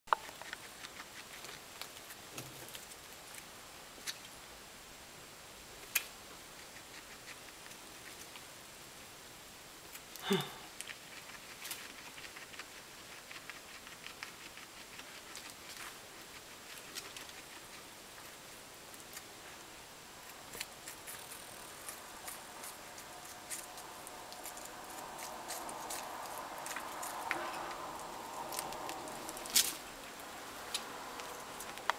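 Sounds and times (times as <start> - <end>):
guinea pig crunching zucchini: 0.1 - 4.4, 5.8 - 8.6, 9.8 - 31.9.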